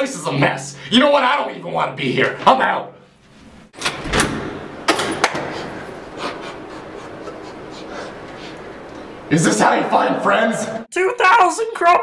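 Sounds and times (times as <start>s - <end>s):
door knocked and pushed open: 3.8s - 5.6s.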